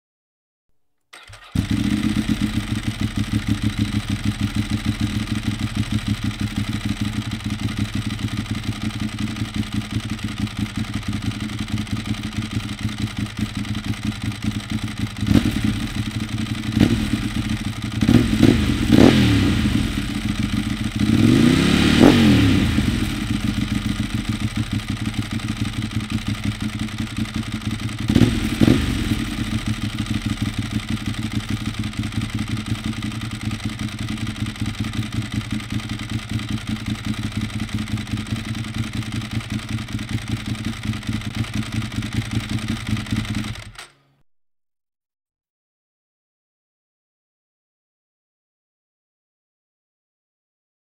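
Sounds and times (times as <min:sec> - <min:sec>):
motorcycle engine idling and revving: 0:01.2 - 0:44.0.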